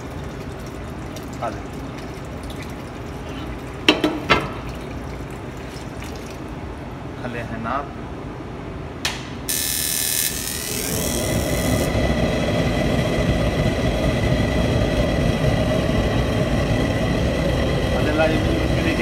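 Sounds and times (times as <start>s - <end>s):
gas flame roaring: 9.1s - 19.0s
gas hissing: 9.5s - 19.0s.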